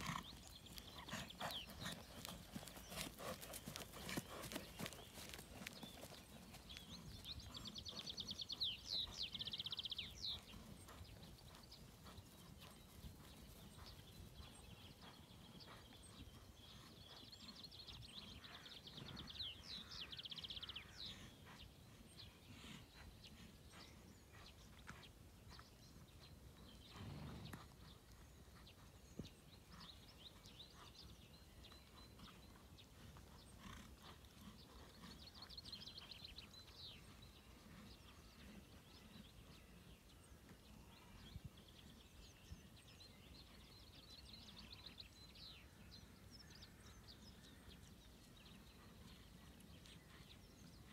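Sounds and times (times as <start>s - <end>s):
horse hoofbeats on grass: 0.0s - 16.6s.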